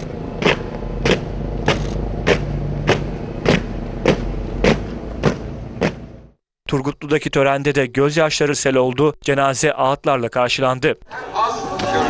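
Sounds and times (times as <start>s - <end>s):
boots marching on pavement: 0.0s - 6.1s.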